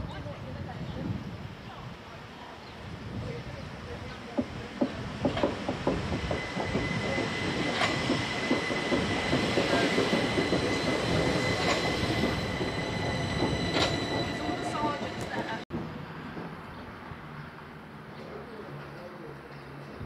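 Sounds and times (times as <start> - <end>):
train wheels clicking over rail joints: 4.2 - 16.6
train high whine: 4.9 - 15.6.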